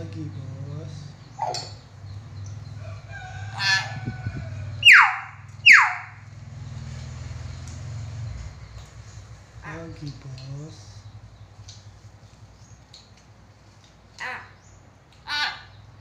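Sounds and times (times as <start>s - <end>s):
myna calling: 3.5s - 6.3s, 14.2s - 16.0s
falling whistles: 4.8s - 6.2s.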